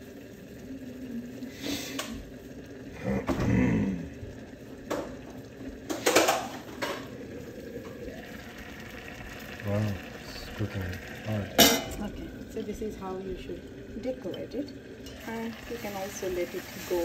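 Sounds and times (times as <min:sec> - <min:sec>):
pots and utensils clattering: 0:05.8 - 0:07.1, 0:11.5 - 0:12.1.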